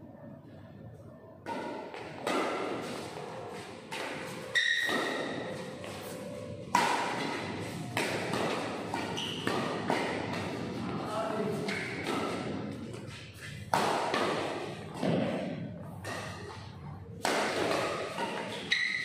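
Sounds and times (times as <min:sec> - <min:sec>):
rackets hitting shuttlecock: 0:01.4 - 0:19.0
shoe squeak: 0:04.5 - 0:05.4, 0:09.1 - 0:09.5, 0:18.5 - 0:19.0.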